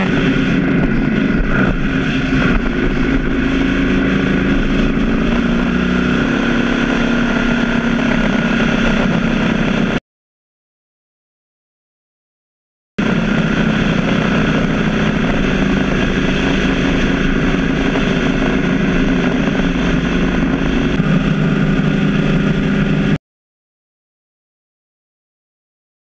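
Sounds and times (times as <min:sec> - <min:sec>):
motorcycle engine cruising: 0:00.0 - 0:10.0, 0:13.0 - 0:23.2
wind rush: 0:00.0 - 0:10.0, 0:13.0 - 0:23.2.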